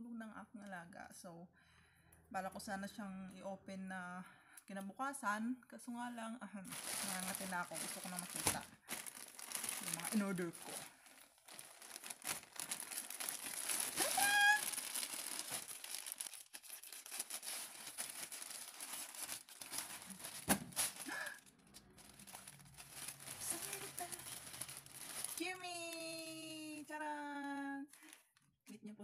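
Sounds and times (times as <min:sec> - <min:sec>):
packaging crinkling and tearing: 0:06.7 - 0:26.7, 0:27.3 - 0:28.5.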